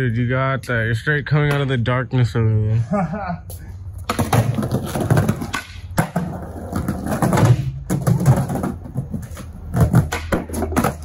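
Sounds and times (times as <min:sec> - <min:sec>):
skateboard knocking: 0:04.0 - 0:11.0
skateboard wheels rolling on ramp: 0:04.1 - 0:11.0.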